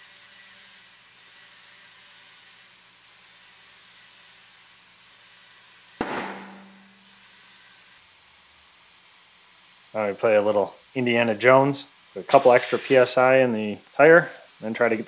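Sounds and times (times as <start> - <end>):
tire bead bang: 6.0 - 7.0
compressed air hissing: 12.2 - 15.0.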